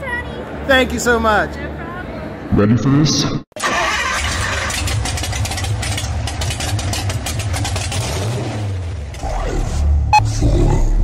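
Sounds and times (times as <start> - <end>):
engine running with crackle: 3.9 - 10.2.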